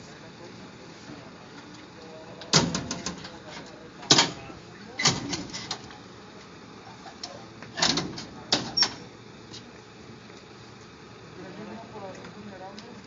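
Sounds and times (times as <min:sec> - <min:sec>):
metal clanks and knocks: 0:02.5 - 0:04.4, 0:05.0 - 0:05.9.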